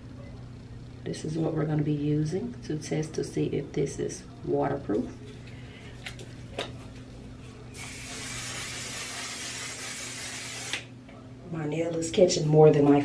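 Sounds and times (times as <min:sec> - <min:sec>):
spray bottle hissing: 0:07.8 - 0:10.8.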